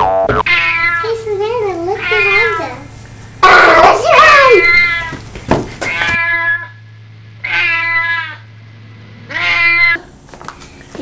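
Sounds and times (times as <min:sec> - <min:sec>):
cat meowing: 0:00.4 - 0:01.1, 0:02.0 - 0:02.8, 0:03.4 - 0:05.2, 0:05.8 - 0:06.8, 0:07.4 - 0:08.5, 0:09.3 - 0:10.1.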